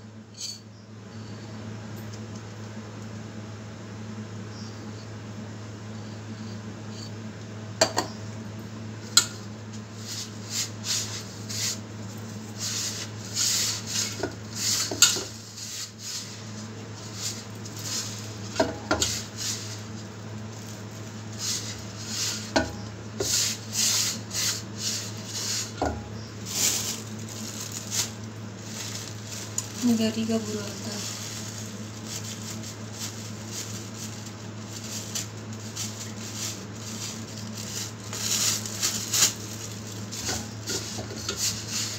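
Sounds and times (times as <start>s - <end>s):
hands mixing in steel bowl: 10.0s - 41.9s.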